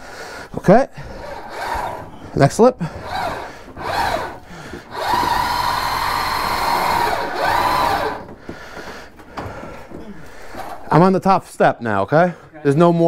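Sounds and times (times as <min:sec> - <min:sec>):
electric motor whining under load: 0:01.2 - 0:02.1, 0:03.0 - 0:08.3.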